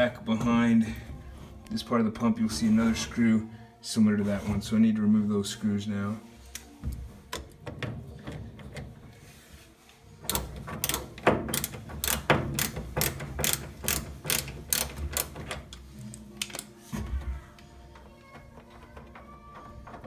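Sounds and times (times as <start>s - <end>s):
ratcheting screwdriver clicking: 10.3s - 15.8s.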